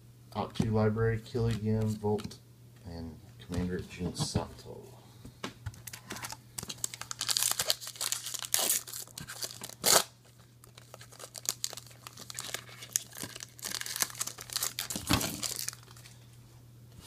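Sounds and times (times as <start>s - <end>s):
foil wrapper crinkling: 5.8s - 16.2s
foil wrapper ripping: 6.2s - 16.2s.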